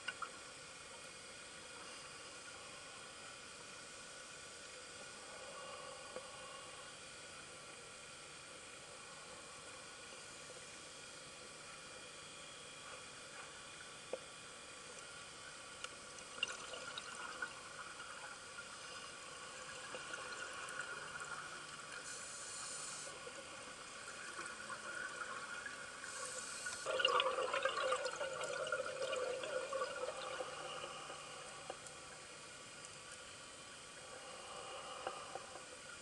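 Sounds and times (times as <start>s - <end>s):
exhaled bubbles gurgling: 16.2s - 22.0s, 23.1s - 32.2s
regulator inhale hisses: 22.0s - 23.2s, 26.0s - 26.9s, 34.0s - 35.7s.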